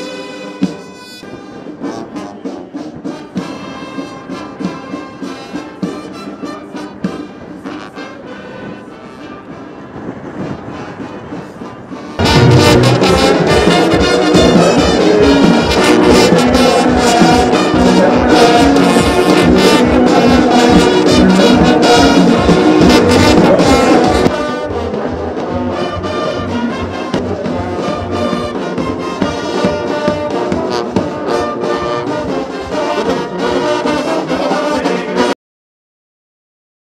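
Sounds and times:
brass band playing a march: 0.0s - 35.4s
steady drum beat: 12.2s - 34.7s.

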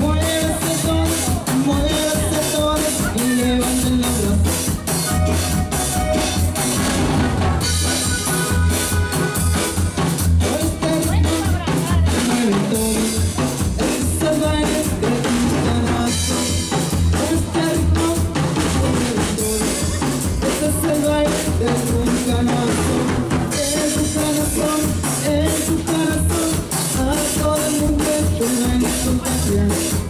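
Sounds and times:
live cumbia band playing: 0.0s - 30.0s.

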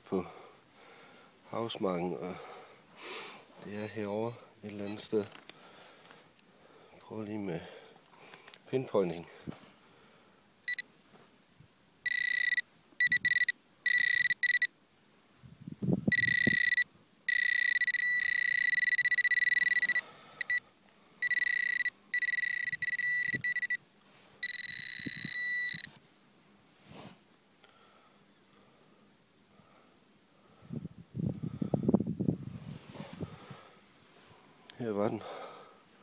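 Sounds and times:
metal detector high buzzing tone: 12.0s - 14.7s, 16.1s - 20.6s, 21.2s - 23.8s, 24.4s - 26.0s.

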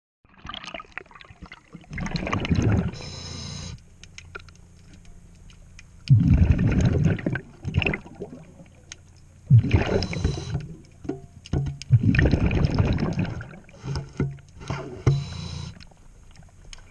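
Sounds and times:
bubbling exhalation: 0.3s - 3.1s, 6.1s - 8.5s, 9.5s - 10.8s, 11.9s - 13.8s
diver breathing through regulator: 2.8s - 3.8s, 9.5s - 10.8s, 13.6s - 15.9s
short steady hiss: 3.0s - 3.8s, 9.8s - 10.6s, 13.8s - 15.9s.

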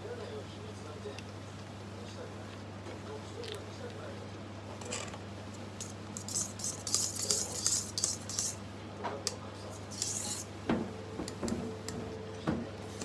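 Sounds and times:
whisk beating batter in metal bowl: 5.8s - 8.6s, 9.7s - 10.5s.

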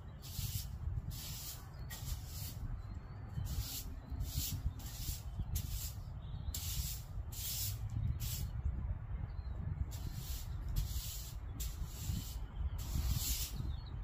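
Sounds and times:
steady low rumble: 0.0s - 14.0s
broom sweeping floor: 0.2s - 2.7s, 3.4s - 6.0s, 10.0s - 13.6s.

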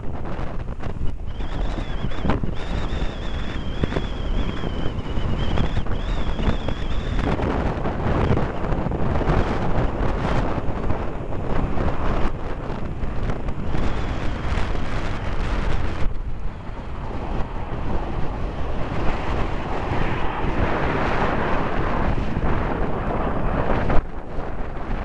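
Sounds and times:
jet engines passing: 0.0s - 25.0s
wind buffeting microphone: 0.0s - 25.0s.

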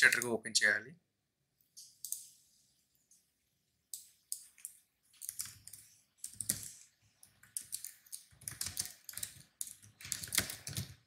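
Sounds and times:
typing on keyboard: 3.9s - 11.0s.

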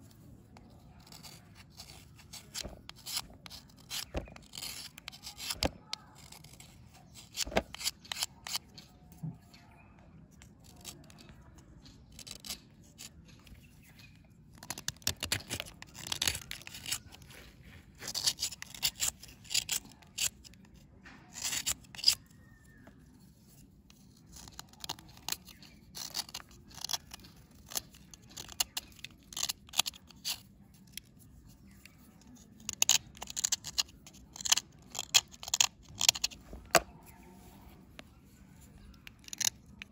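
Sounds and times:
knife scraping a dry bar: 0.5s - 9.6s, 10.6s - 39.9s.

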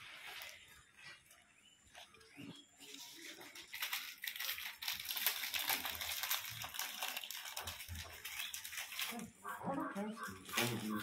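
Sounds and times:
plastic snack packet crinkling: 2.8s - 9.6s, 10.2s - 11.0s.

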